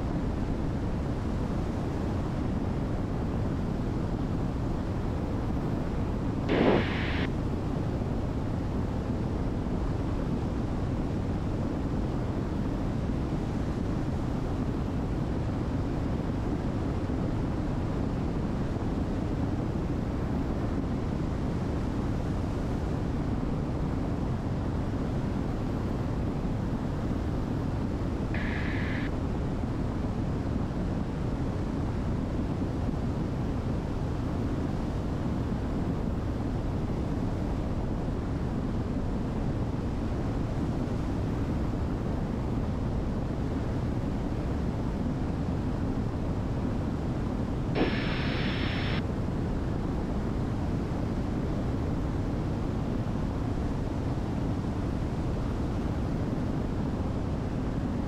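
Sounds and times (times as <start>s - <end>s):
aircraft engines droning: 28.4s - 29.1s, 47.8s - 49.0s
high-pitched electronic bursts: 28.4s - 29.1s, 47.8s - 49.0s.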